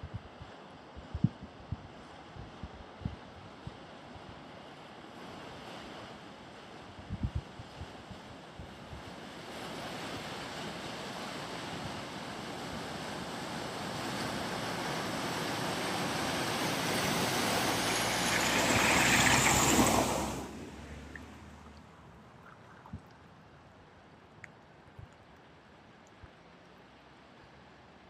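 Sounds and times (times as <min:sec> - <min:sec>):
car splashing through floodwater: 0:09.7 - 0:22.6.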